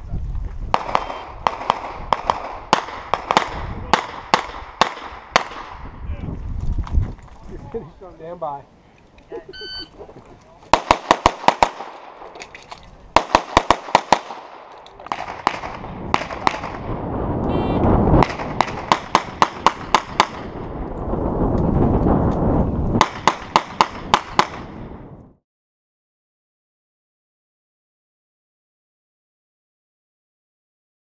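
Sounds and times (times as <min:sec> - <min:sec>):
rapid handgun shots: 0:00.8 - 0:05.8, 0:10.7 - 0:12.2, 0:13.2 - 0:16.9, 0:18.2 - 0:20.5, 0:23.0 - 0:24.7.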